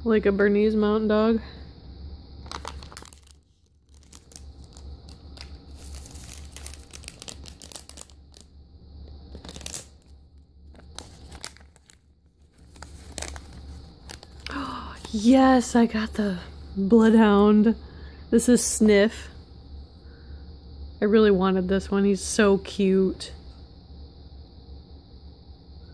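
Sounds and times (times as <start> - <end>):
plastic packet crinkling and tearing: 2.4 - 8.5, 9.3 - 15.2.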